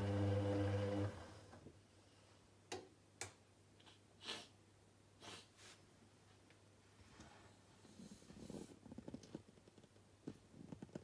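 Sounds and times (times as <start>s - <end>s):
faint clicks and taps: 8.9s - 11.0s.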